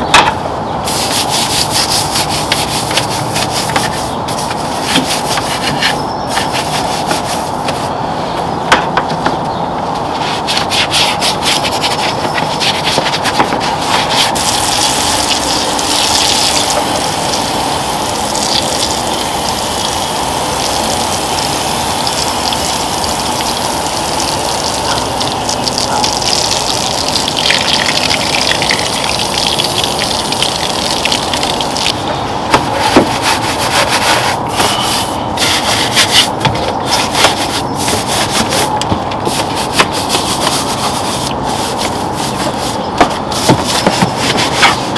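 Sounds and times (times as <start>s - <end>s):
brush scrubbing plastic: 0.9s - 7.9s, 10.1s - 19.2s, 32.6s - 44.9s.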